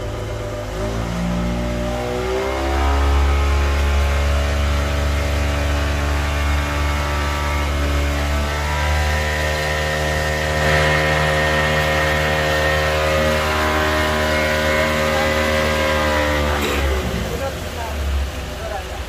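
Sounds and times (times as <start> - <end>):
outboard motor droning: 0.0 - 19.0.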